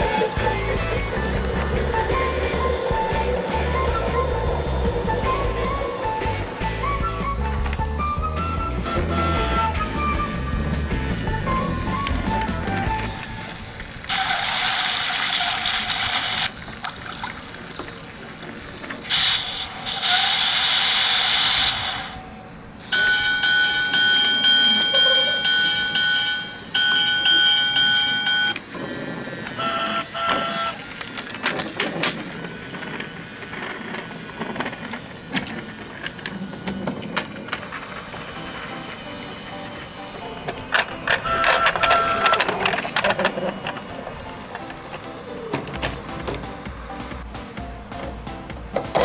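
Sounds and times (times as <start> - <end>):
short electronic tone: 8.6 - 10.6, 41.1 - 42.6
toy trains clattering on track: 14.1 - 16.8, 28.6 - 46.4
electronic beeping: 22.9 - 28.6, 41.0 - 44.0
chiming tones: 23.0 - 28.5.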